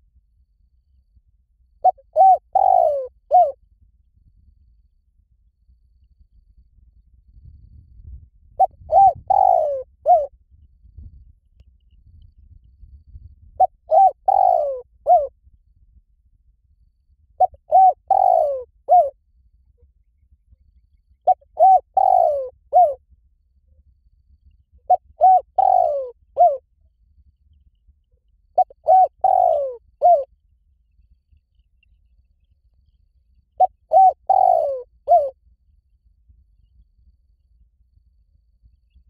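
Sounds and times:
dove cooing: 0:01.8 - 0:03.6, 0:08.6 - 0:10.3, 0:13.6 - 0:15.3, 0:17.4 - 0:19.1, 0:21.3 - 0:23.0, 0:24.9 - 0:26.6, 0:28.6 - 0:30.3, 0:33.6 - 0:35.4.

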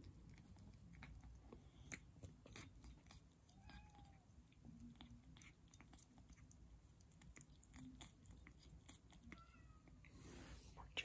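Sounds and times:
kitten chewing food: 0:00.0 - 0:11.0.

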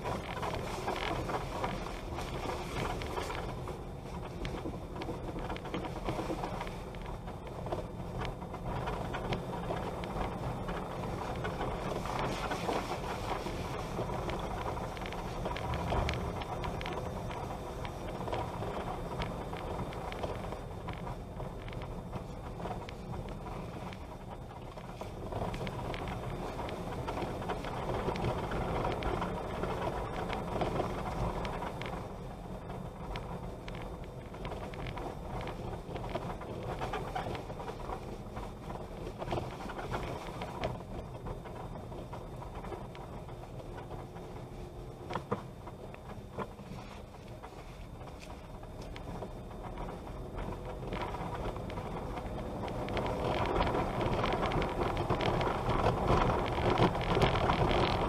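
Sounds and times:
vehicle rumbling on dirt road: 0:00.0 - 0:58.0
wind buffeting microphone: 0:00.0 - 0:58.0.

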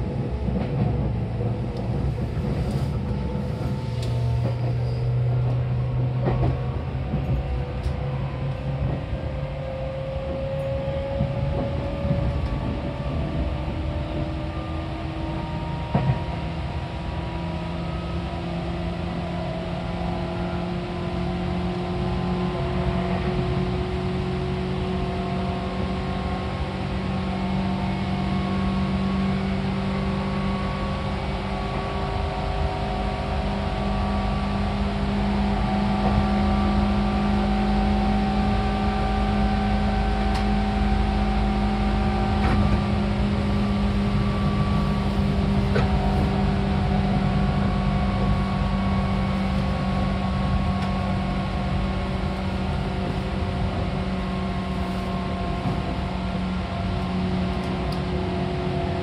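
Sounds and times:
electric train rumble: 0:00.0 - 0:59.0
motor and gear whine: 0:35.1 - 0:58.9.

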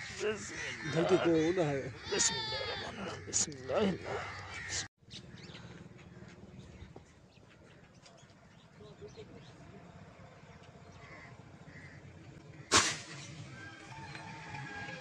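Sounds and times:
crows cawing: 0:00.0 - 0:06.4, 0:10.9 - 0:12.8
bird calls: 0:00.0 - 0:14.9.

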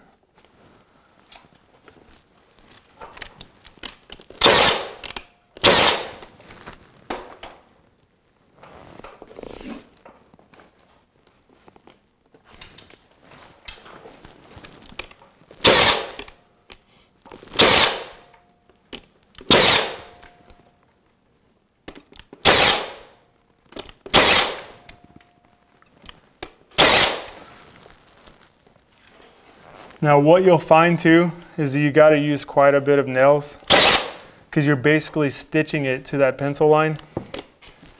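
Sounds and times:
molding rustling: 0:00.3 - 0:05.0, 0:05.8 - 0:21.8, 0:23.4 - 0:33.4
nail gun firing: 0:04.4 - 0:06.2, 0:15.6 - 0:16.3, 0:17.6 - 0:18.2, 0:19.5 - 0:20.2, 0:22.4 - 0:23.1, 0:24.1 - 0:24.8, 0:26.8 - 0:27.4, 0:33.6 - 0:34.2.

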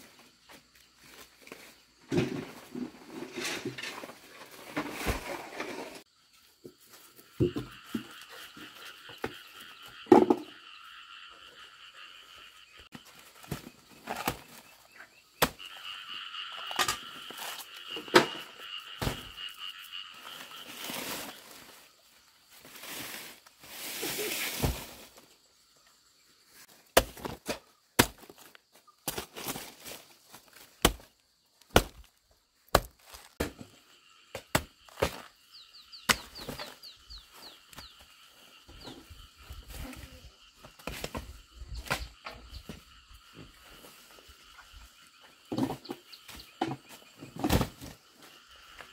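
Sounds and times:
knife chopping banana trunks: 0:31.7 - 0:32.1.

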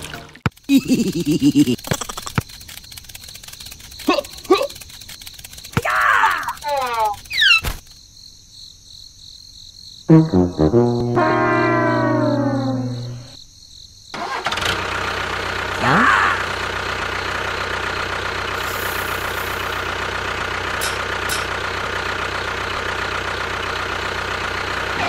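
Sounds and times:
tractor engine running: 0:00.0 - 0:05.9, 0:14.2 - 0:25.0
short rising tone: 0:10.1 - 0:13.4.

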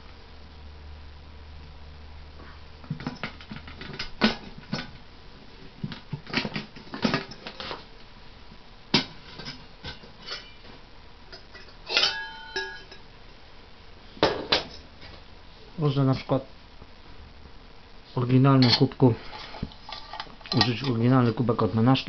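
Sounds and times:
metal cookware clinking: 0:09.2 - 0:10.6, 0:11.3 - 0:13.1, 0:18.6 - 0:21.0.

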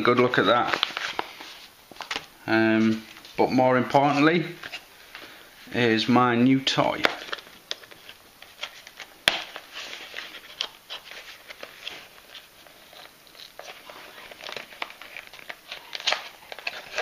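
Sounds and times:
cardboard scratching and rustling: 0:07.2 - 0:17.0.

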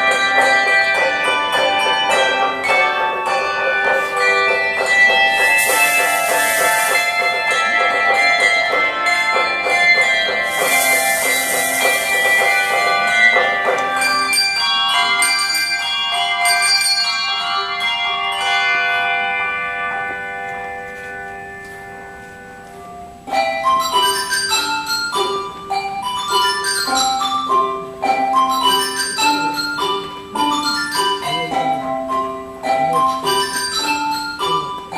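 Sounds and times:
quick short bell notes: 0:00.0 - 0:17.8
handbell chords ringing: 0:00.0 - 0:34.9.

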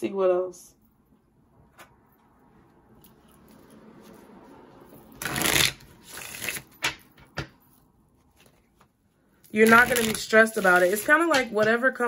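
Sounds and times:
cards being shuffled: 0:05.2 - 0:07.3, 0:09.5 - 0:11.6.

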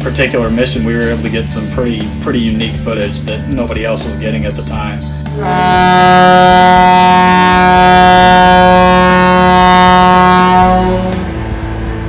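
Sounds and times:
ship's horn blast: 0:05.4 - 0:11.6.

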